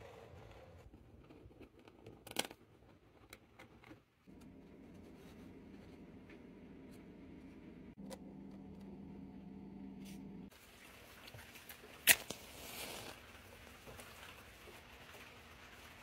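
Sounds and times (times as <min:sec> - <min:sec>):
steady low hum: 0:04.3 - 0:10.5.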